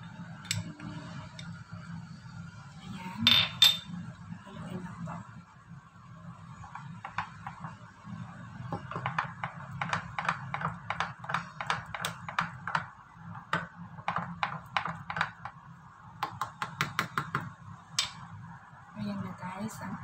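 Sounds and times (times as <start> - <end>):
wooden spoon tapping plastic cup: 8.7 - 12.9, 13.5 - 15.5.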